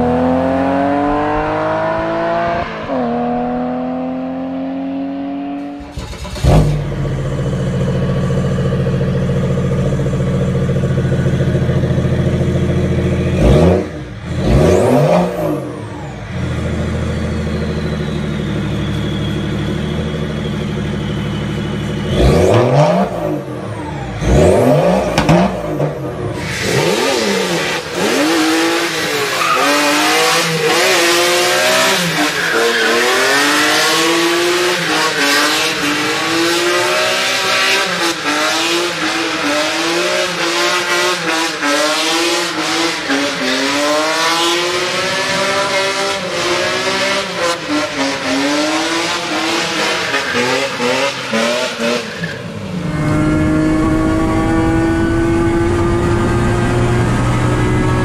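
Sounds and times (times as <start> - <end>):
car engine revving: 0.0 - 58.0
spinning tyres squealing: 10.8 - 54.7.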